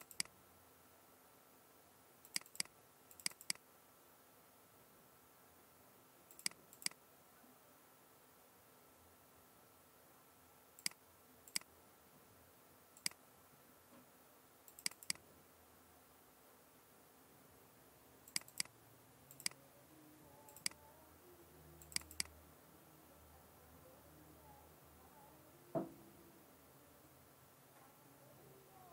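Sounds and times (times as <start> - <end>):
mouse button clicking: 0.0 - 0.3, 18.3 - 18.7, 19.3 - 19.6, 20.5 - 20.8, 21.8 - 22.3.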